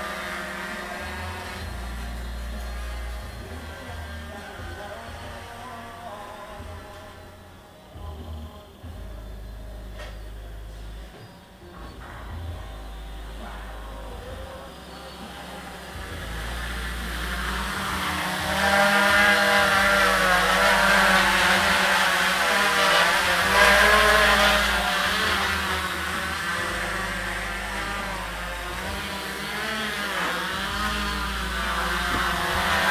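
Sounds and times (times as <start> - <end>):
drone propellers buzzing: 0.0 - 32.9.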